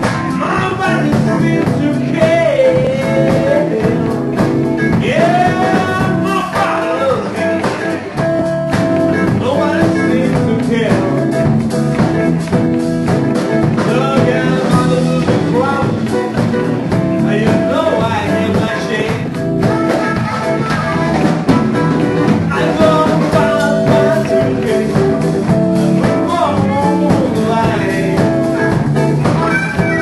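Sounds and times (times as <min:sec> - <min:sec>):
drums: 0:00.0 - 0:30.0
electric bass: 0:00.0 - 0:30.0
electric guitar: 0:00.0 - 0:30.0
amplified harmonica wailing: 0:19.7 - 0:22.7, 0:29.2 - 0:30.0.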